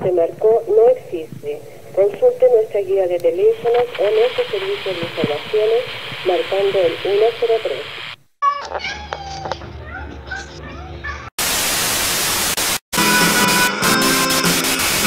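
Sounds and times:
tv static: 0:00.0 - 0:08.4, 0:11.4 - 0:12.8, 0:14.0 - 0:15.0
music playing: 0:13.0 - 0:15.0.

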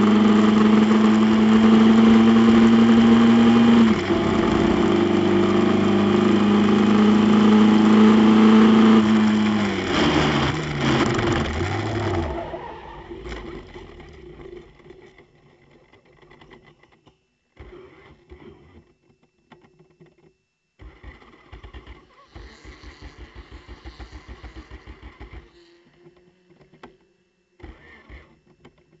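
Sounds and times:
car engine revving high: 0:00.0 - 0:13.6
starter motor cranking: 0:00.0 - 0:14.7.

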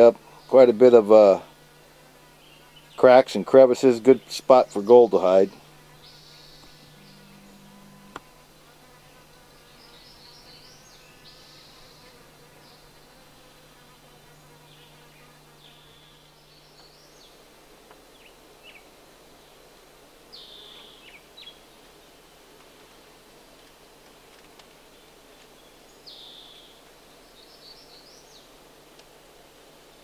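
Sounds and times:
low buzz: 0:00.0 - 0:23.4.

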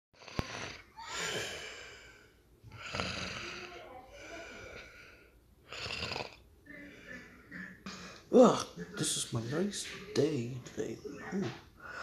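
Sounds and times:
person snoring: 0:00.2 - 0:04.9, 0:05.7 - 0:06.4.

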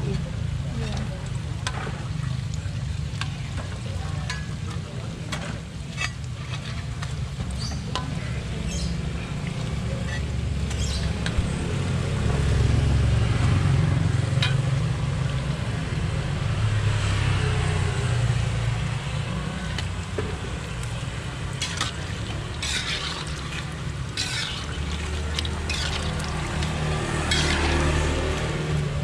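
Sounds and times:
pastry sizzling in hot oil: 0:00.0 - 0:29.0
metal ladle scraping wok: 0:03.2 - 0:08.9, 0:09.7 - 0:11.5, 0:14.3 - 0:14.8, 0:19.7 - 0:29.0.

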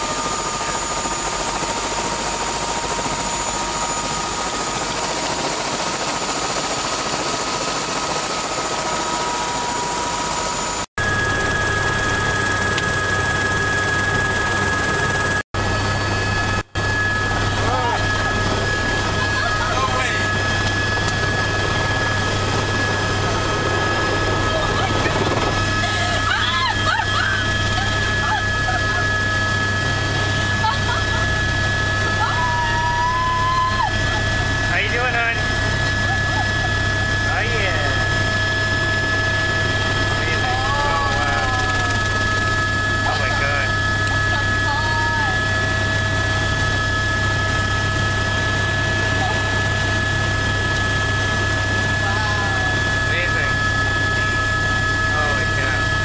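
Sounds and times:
helicopter engine and rotor: 0:00.0 - 0:56.0
high steady whine: 0:08.5 - 0:56.0.

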